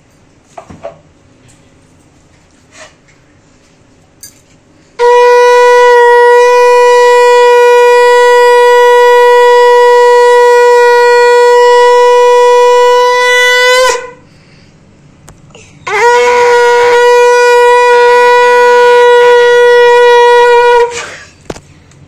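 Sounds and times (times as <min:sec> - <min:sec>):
conch shell blown long note: 0:04.9 - 0:14.3, 0:15.8 - 0:21.3.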